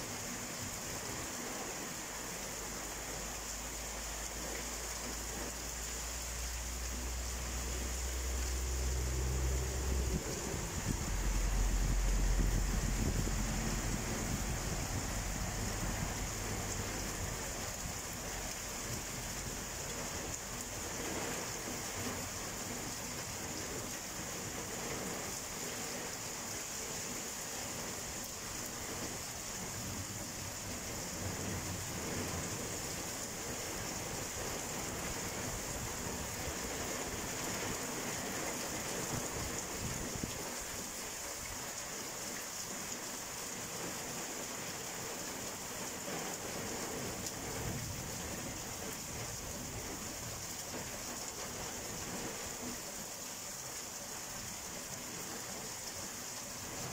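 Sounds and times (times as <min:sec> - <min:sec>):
steady rain pouring: 0:00.0 - 0:56.9
thunder rumbling: 0:08.6 - 0:17.5.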